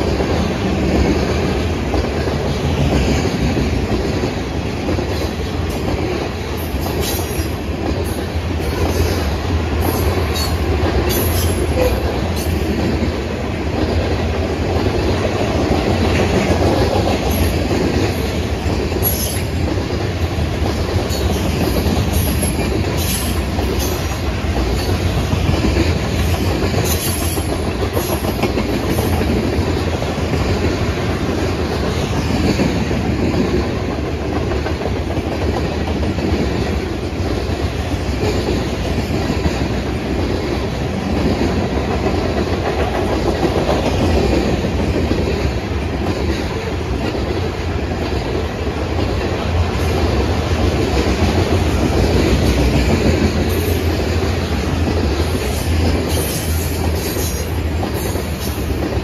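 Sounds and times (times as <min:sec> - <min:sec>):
train wheels clickety-clack: 0:00.0 - 0:59.0
wheels squealing on rails: 0:06.5 - 0:12.9, 0:19.0 - 0:19.7, 0:21.0 - 0:25.4, 0:26.2 - 0:29.4, 0:51.2 - 0:59.0.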